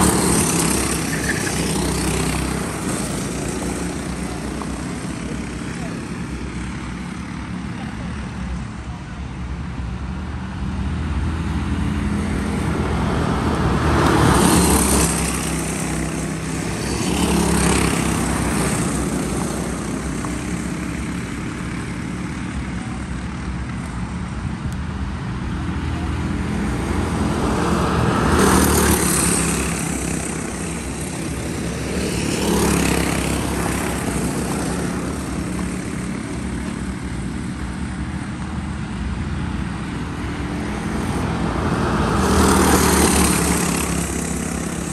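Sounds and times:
kart engines buzzing: 0:00.0 - 0:44.9.

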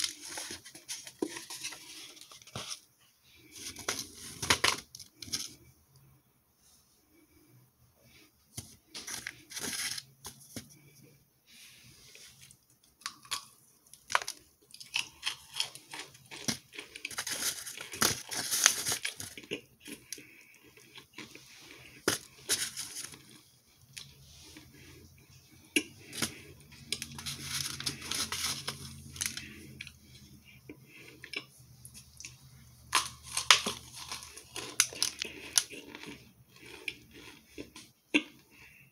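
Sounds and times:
low steady hum: 0:00.0 - 0:38.9.

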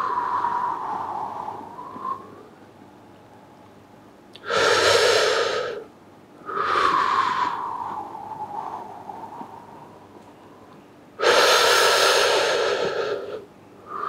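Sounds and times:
person breathing deeply: 0:04.4 - 0:10.0, 0:11.2 - 0:14.0.

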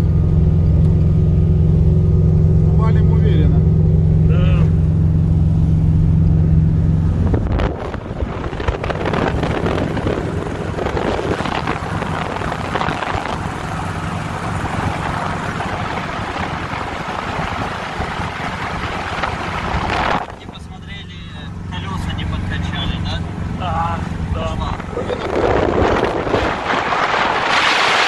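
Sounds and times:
car engine droning: 0:00.0 - 0:28.0
tyre and road noise: 0:00.0 - 0:28.0
wind rushing over microphone: 0:04.7 - 0:20.6, 0:24.1 - 0:28.0.

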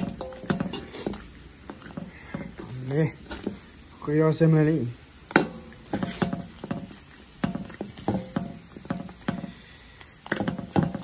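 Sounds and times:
metal ladle scraping a wok: 0:00.0 - 0:02.6.

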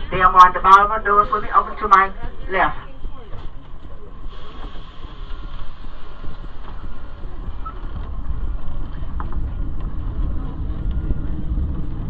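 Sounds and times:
streetcar rumbling on tracks: 0:00.0 - 0:12.0.

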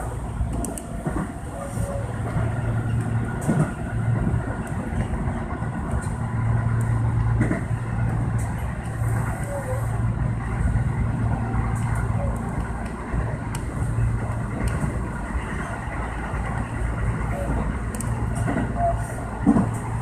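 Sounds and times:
electric train running on track: 0:00.0 - 0:20.0
track knock: 0:19.4 - 0:19.8.

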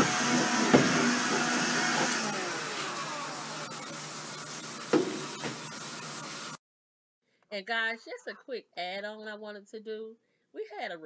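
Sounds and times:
vacuum cleaner running: 0:00.0 - 0:06.6
sharp knocks: 0:04.9 - 0:05.6.

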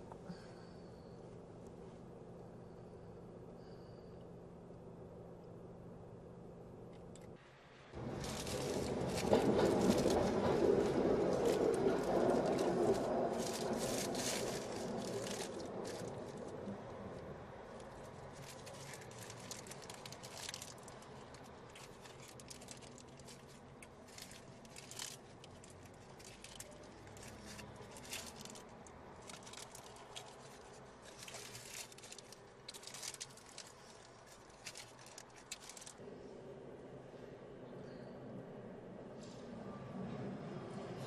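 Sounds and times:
low steady rumble: 0:00.0 - 0:39.1
crackling and rustling ticks: 0:08.0 - 0:16.6, 0:17.2 - 0:36.0.

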